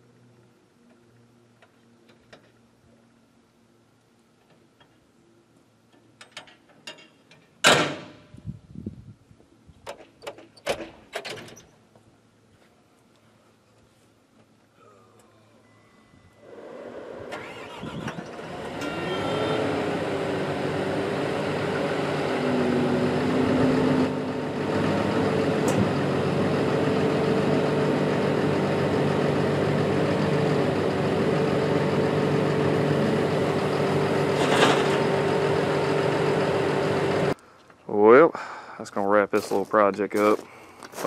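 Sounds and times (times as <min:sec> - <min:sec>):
hydraulic blade whine: 0:15.7 - 0:37.4
bulldozer diesel engine starting: 0:16.4 - 0:37.4.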